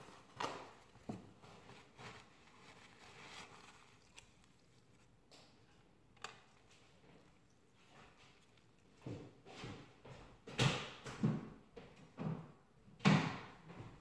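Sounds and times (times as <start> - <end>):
paper towel rustling and wiping: 0.0 - 5.2.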